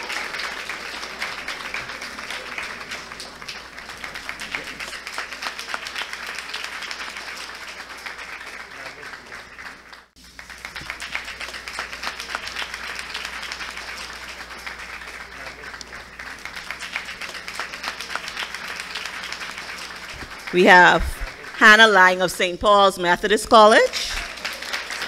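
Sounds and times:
audience applauding: 0:00.0 - 0:21.7, 0:23.7 - 0:25.0.

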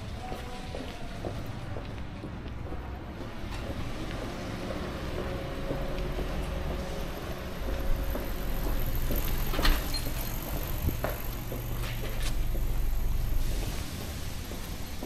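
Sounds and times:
vehicle engine running: 0:04.1 - 0:14.7.

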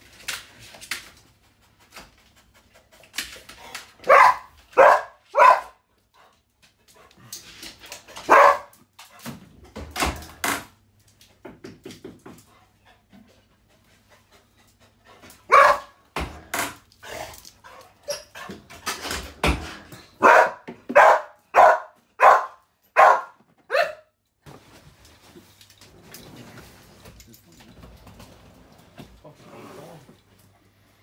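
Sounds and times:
dog barking: 0:04.0 - 0:05.8, 0:08.3 - 0:08.7, 0:15.5 - 0:16.0, 0:20.2 - 0:24.1.

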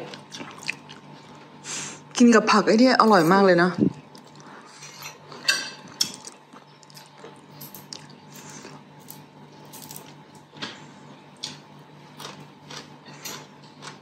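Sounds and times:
low room hum: 0:00.0 - 0:14.0
metal spoon clinking on plate: 0:04.9 - 0:06.2.

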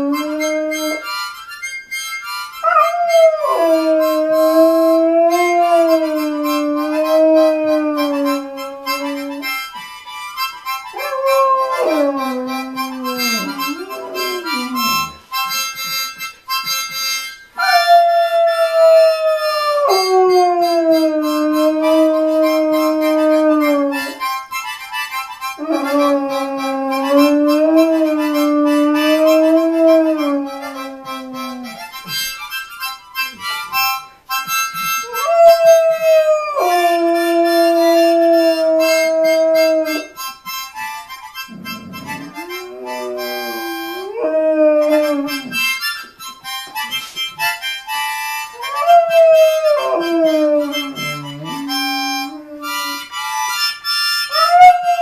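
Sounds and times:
dog howling: 0:02.6 - 0:09.4, 0:11.0 - 0:15.1, 0:17.6 - 0:24.2, 0:35.1 - 0:40.1, 0:41.5 - 0:45.6, 0:48.6 - 0:53.0, 0:54.3 - 0:55.0.

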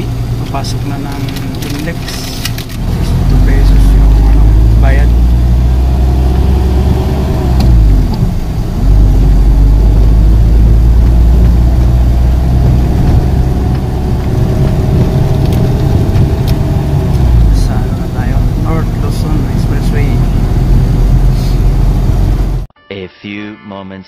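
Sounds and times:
van engine and road rumble: 0:00.0 - 0:22.7.

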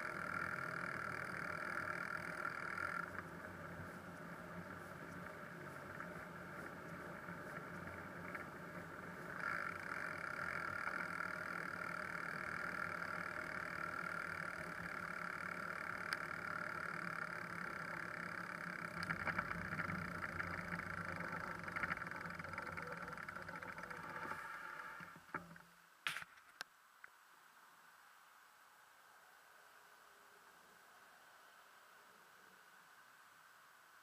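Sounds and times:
bicycle tyres rolling: 0:00.0 - 0:26.3
steady hum: 0:00.0 - 0:34.0.

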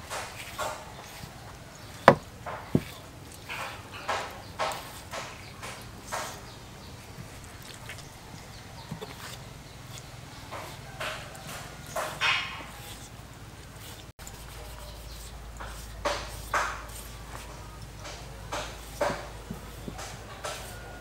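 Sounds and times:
knife scraping raw hide: 0:00.0 - 0:21.0
sharp knocks on wooden board: 0:02.0 - 0:03.0.

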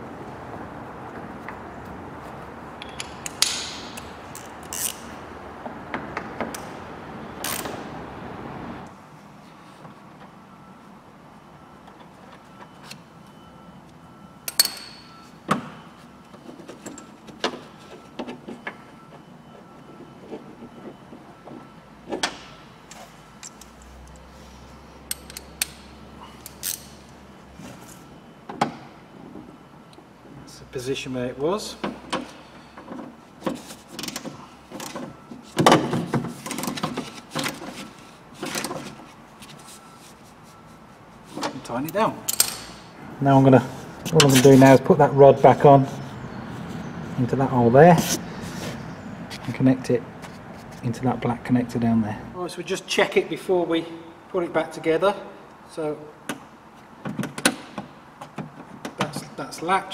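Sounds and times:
metal tools clinking in car door: 0:02.8 - 0:05.1, 0:14.4 - 0:15.6, 0:25.1 - 0:27.1, 0:41.4 - 0:43.0, 0:44.1 - 0:44.6.

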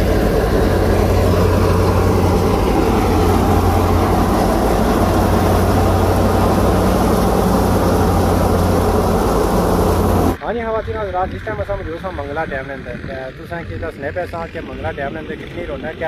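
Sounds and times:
dense rushing noise: 0:00.0 - 0:12.7
threshing machine engine drone: 0:00.0 - 0:16.0.

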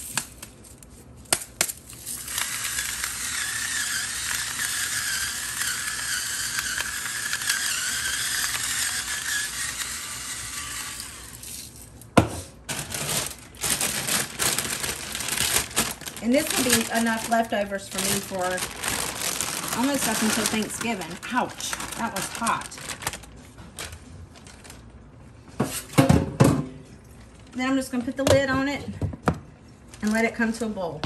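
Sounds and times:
electric salt grinder running: 0:02.1 - 0:11.5, 0:12.7 - 0:22.8.

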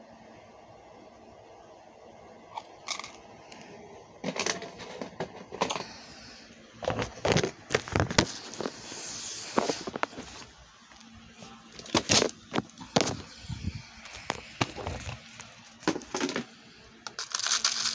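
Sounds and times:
metal beads clicking and clinking: 0:17.1 - 0:17.9.

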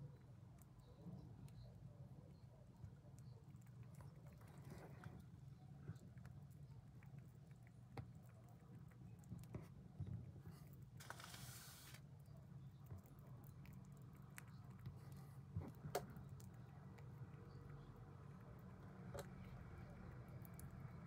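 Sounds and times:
hamster nibbling clicks: 0:00.1 - 0:11.0, 0:12.0 - 0:21.0
soft hiss: 0:10.9 - 0:12.1.

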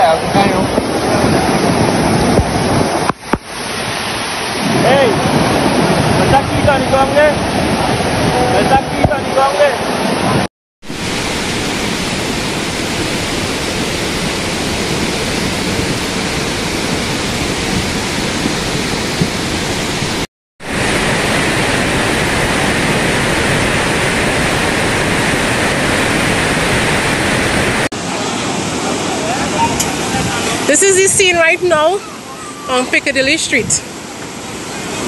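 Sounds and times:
heavy downpour: 0:00.0 - 0:33.3
rushing runoff water: 0:00.0 - 0:35.0.

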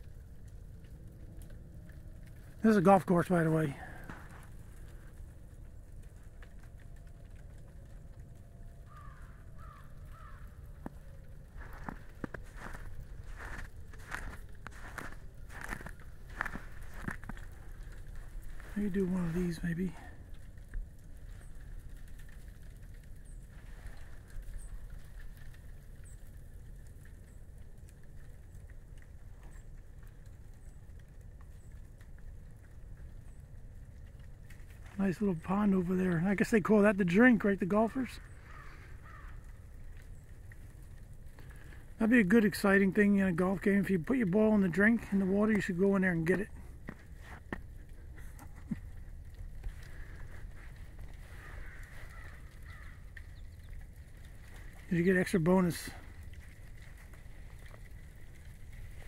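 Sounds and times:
steady low rumble: 0:00.0 - 0:36.6, 0:42.8 - 0:55.0
footsteps crunching in wet snow: 0:01.9 - 0:05.3, 0:08.9 - 0:25.6, 0:42.3 - 0:55.4
bird harsh calls: 0:38.2 - 0:39.4, 0:51.2 - 0:53.8.

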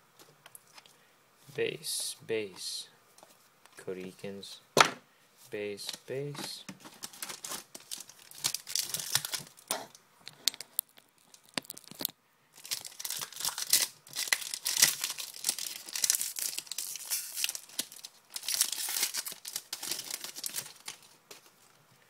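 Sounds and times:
card pack wrappers crinkling: 0:05.7 - 0:21.7.

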